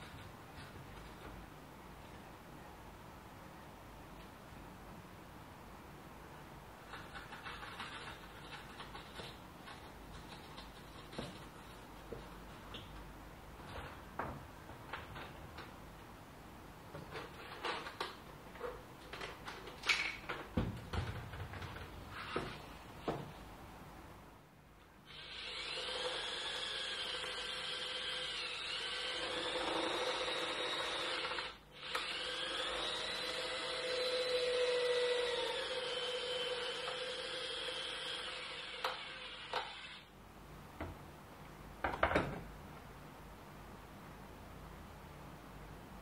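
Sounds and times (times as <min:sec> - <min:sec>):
cordless drill whining: 0:25.1 - 0:40.1.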